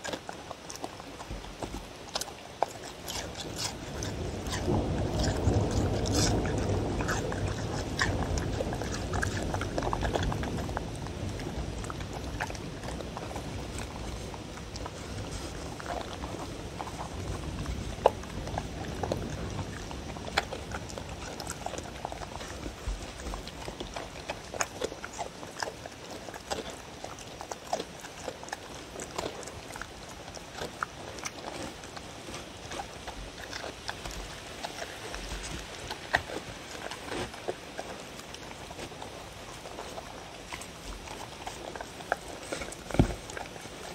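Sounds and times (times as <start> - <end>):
dogs chewing and licking: 0.0 - 43.9.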